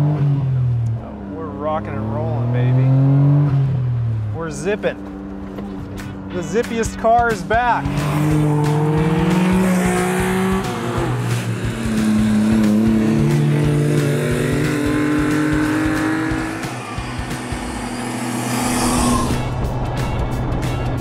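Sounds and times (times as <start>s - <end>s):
small car engine running hard: 7.4s - 21.0s.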